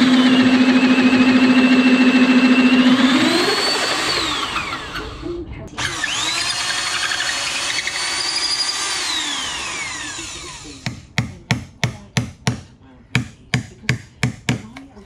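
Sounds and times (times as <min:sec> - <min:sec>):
electric drill with hole saw: 0:00.0 - 0:11.0
chisel hammered into wood: 0:10.8 - 0:14.9.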